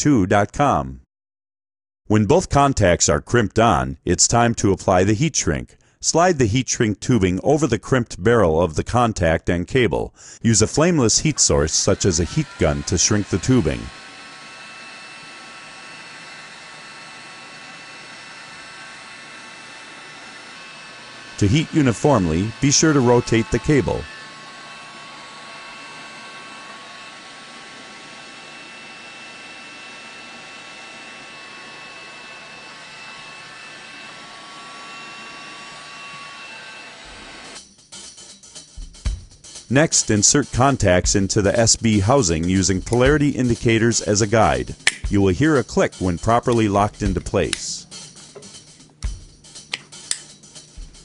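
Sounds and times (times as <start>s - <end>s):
heat gun blowing: 10.2s - 37.6s, 40.6s - 51.0s.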